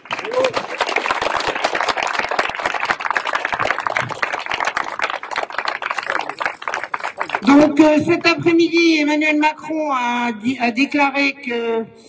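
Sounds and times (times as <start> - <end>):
crowd applauding: 0.0 - 7.7.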